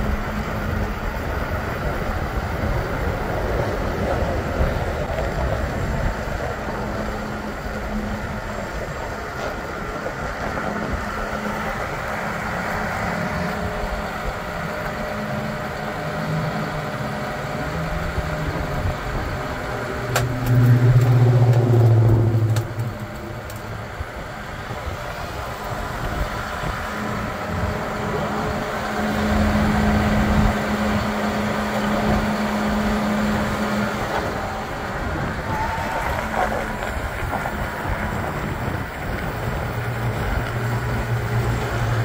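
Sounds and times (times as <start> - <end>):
tractor engine idling: 0.0 - 42.0.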